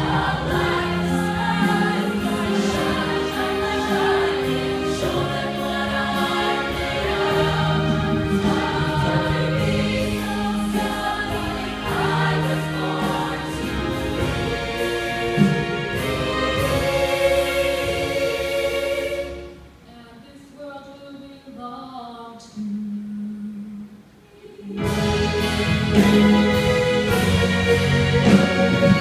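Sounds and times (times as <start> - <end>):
women's choir singing: 0.0 - 19.6.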